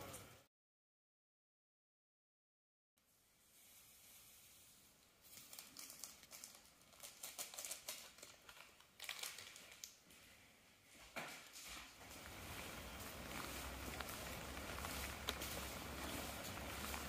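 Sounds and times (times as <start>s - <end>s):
plastic wrapping crinkling: 5.1s - 10.2s, 11.4s - 17.0s.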